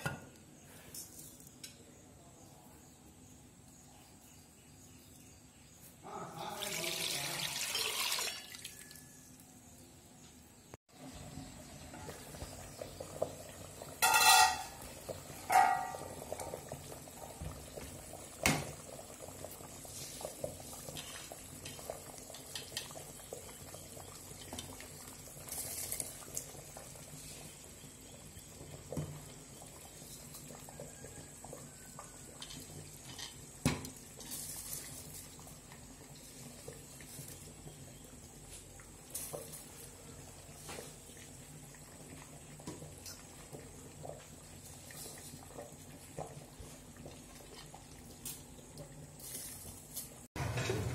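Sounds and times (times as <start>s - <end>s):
low simmering: 0.0s - 50.9s
pots and utensils clinking: 8.1s - 8.9s, 11.8s - 18.9s, 20.1s - 27.5s, 28.7s - 37.3s, 49.2s - 50.9s.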